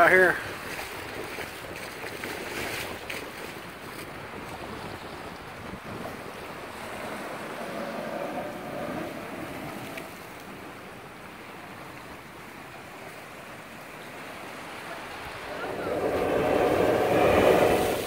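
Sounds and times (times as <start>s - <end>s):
seawater surging through rocks: 2.9s - 18.0s.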